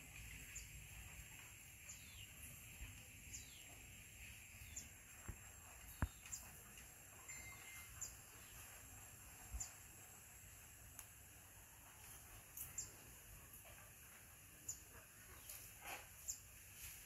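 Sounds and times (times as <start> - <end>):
thin steady high tone: 7.1 - 8.5.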